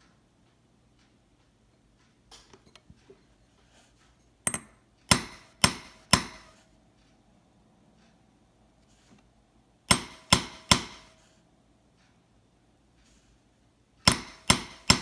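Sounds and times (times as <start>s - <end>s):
small hammer tapping metal punch: 4.4s - 6.6s, 9.9s - 11.2s, 14.0s - 15.0s.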